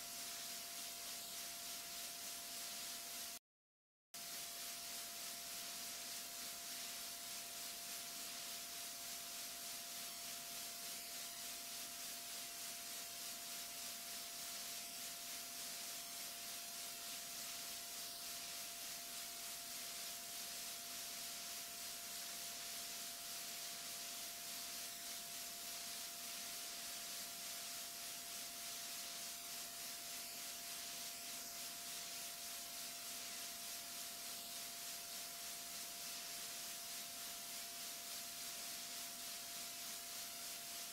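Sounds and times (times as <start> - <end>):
room tone hiss: 0.0 - 3.4, 4.2 - 40.9.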